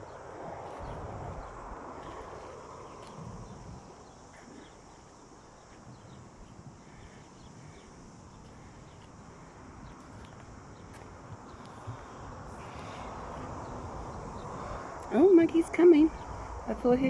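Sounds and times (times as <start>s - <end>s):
outdoor hiss: 0.0s - 17.0s
footsteps on sand and pebbles: 0.6s - 6.3s, 8.3s - 12.9s.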